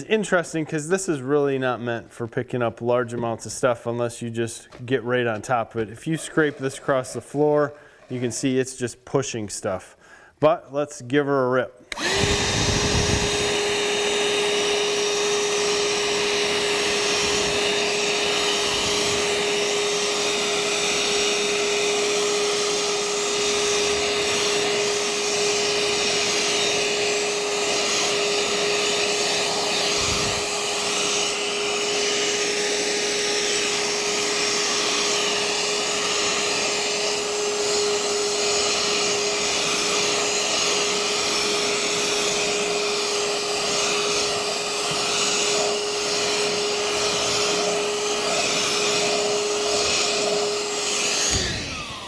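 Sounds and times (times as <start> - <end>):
hand vacuum motor whine: 11.9 - 52.0.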